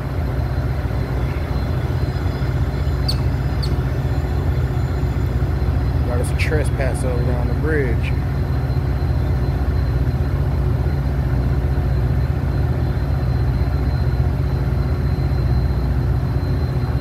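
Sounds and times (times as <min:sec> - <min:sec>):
faint high whine: 0:00.0 - 0:17.0
freight train rumbling: 0:00.0 - 0:17.0.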